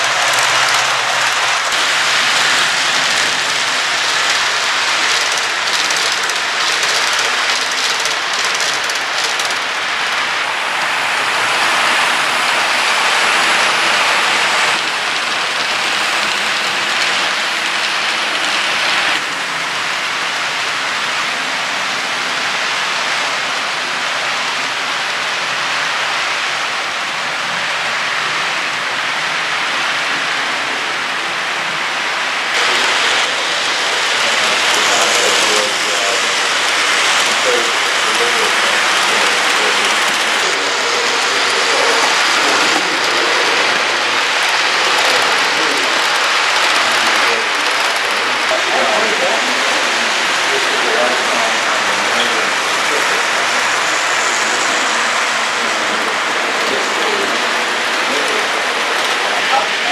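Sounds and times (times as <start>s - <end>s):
model train running on track: 0.0s - 59.9s.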